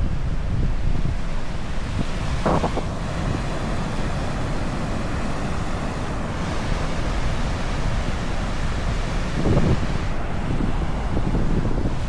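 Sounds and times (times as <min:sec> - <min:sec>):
ocean surf washing on beach: 0:00.0 - 0:12.0
wind buffeting microphone: 0:00.0 - 0:12.0.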